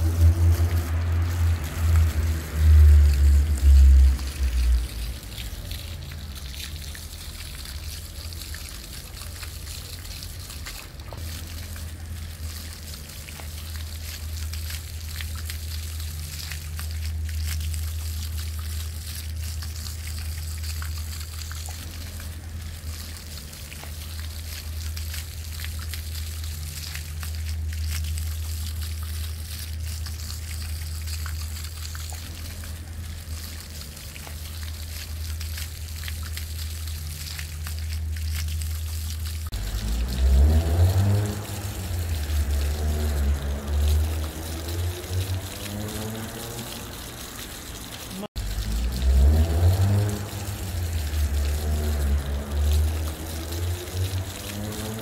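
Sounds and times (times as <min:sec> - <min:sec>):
low rumble: 0:00.0 - 0:06.3
fountain splashing on paving: 0:00.0 - 0:55.0.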